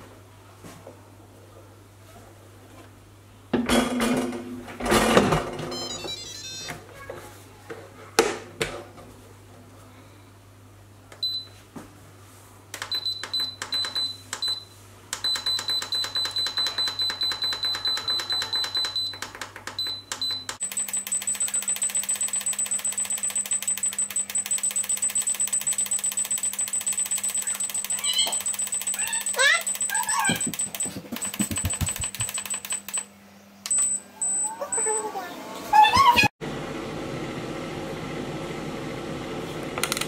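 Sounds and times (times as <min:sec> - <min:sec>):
control panel beeping: 0:05.7 - 0:06.7, 0:12.8 - 0:35.2
fast run of high beep ticks: 0:15.2 - 0:33.1.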